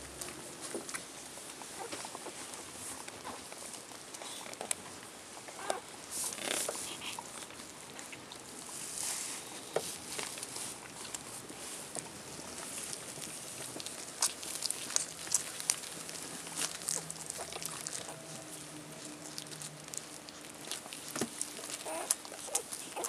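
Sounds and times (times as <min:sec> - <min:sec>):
puppies suckling: 0:00.7 - 0:23.0
puppy squeak: 0:21.8 - 0:23.0.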